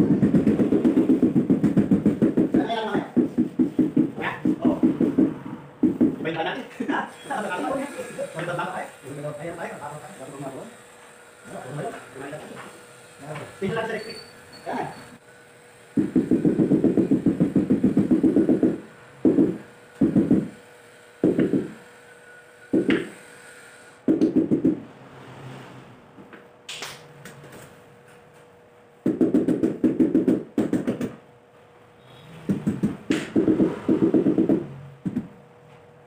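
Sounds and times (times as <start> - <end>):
tile knocking and scraping: 0.0 - 6.2, 16.0 - 20.5, 32.5 - 35.3.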